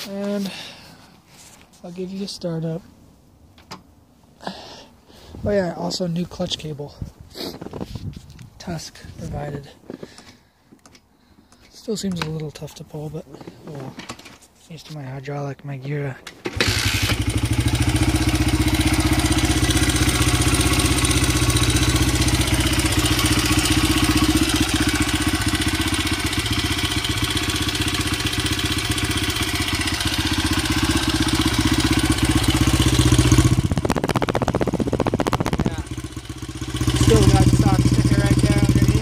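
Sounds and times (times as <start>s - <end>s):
motorcycle engine idling: 16.6s - 39.0s.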